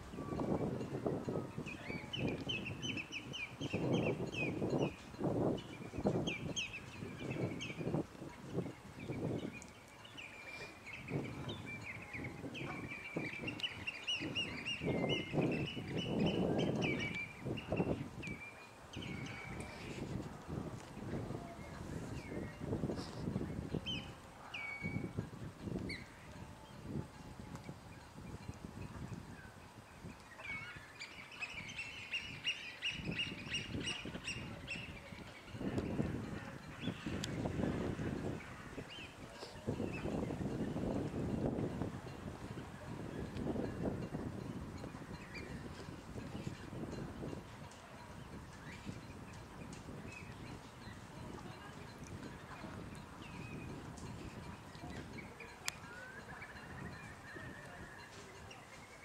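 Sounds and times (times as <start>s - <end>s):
wind rumble on microphone: 0.0s - 59.0s
birds calling: 1.5s - 20.0s.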